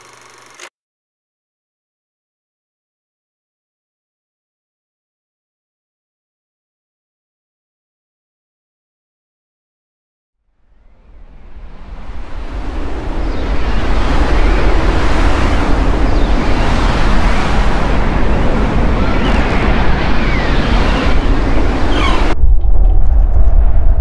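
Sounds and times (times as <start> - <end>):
whistling wind gusts: 10.6 - 24.0
loud rushing sandstorm wind: 10.8 - 24.0
muffled low storm rumble: 10.8 - 24.0.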